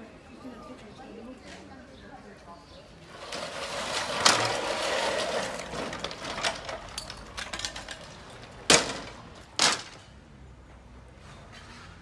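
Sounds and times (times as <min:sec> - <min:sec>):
wooden timbers knocking and clattering: 0:03.2 - 0:10.1.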